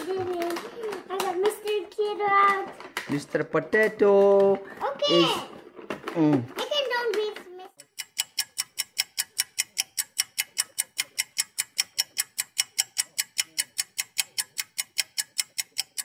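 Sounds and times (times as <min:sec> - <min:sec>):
rapid even ticking: 0:06.6 - 0:16.0.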